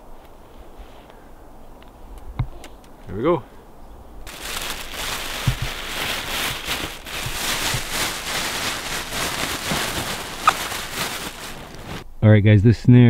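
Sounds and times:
plastic bag rustling: 4.3s - 12.0s.

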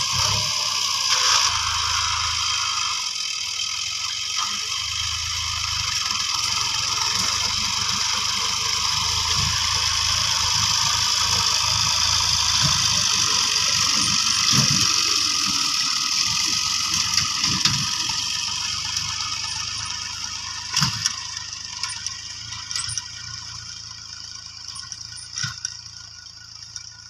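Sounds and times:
tractor diesel engine: 0.0s - 27.0s
implement clicks and rattles: 12.1s - 23.3s.

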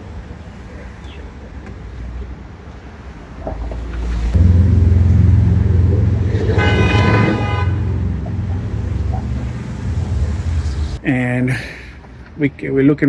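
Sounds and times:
deep vehicle rumble: 0.0s - 11.1s
vehicle horn: 4.4s - 10.2s.

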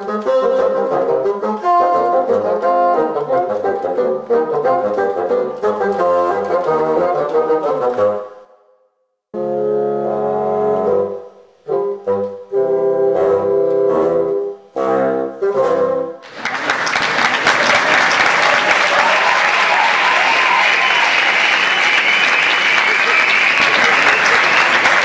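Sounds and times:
bassoons playing chords: 0.0s - 8.5s, 9.4s - 16.2s
applause: 16.2s - 25.0s.

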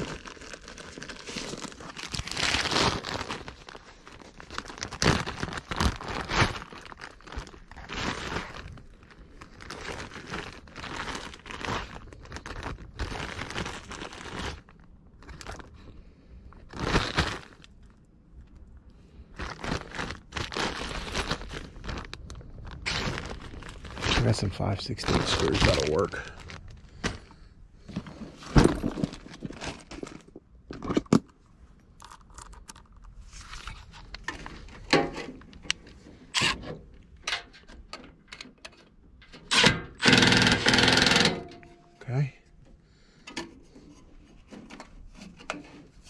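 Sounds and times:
plastic bag crinkling: 0.0s - 18.0s, 19.3s - 30.4s.

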